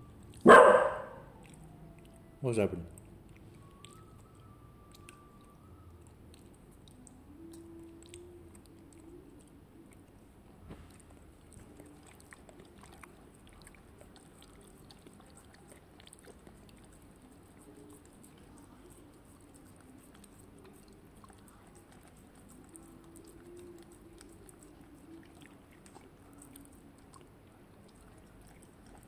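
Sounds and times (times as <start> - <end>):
dog whining: 0.0 - 2.4.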